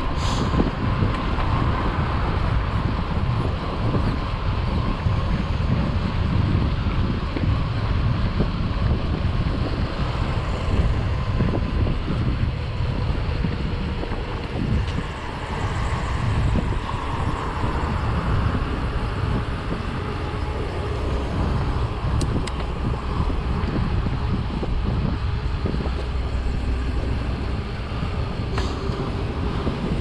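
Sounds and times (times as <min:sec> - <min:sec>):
loud low rumbling: 0:00.0 - 0:30.0
hiss: 0:00.2 - 0:00.6.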